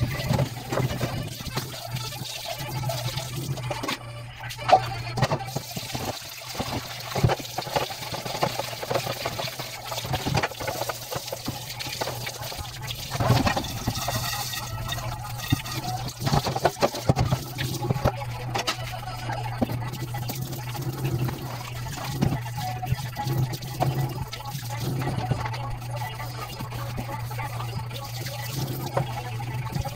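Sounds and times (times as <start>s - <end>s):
tap water splashing into sink: 4.7s - 18.9s.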